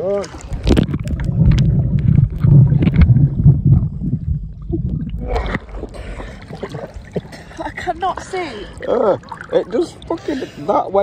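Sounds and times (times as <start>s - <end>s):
muffled underwater water sloshing: 0.0s - 11.0s
water splash: 0.1s - 7.7s.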